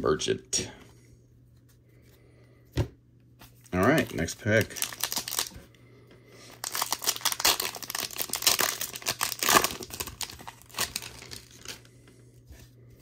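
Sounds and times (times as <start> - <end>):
foil wrapper tearing and crinkling: 3.8 - 5.6, 6.5 - 11.9.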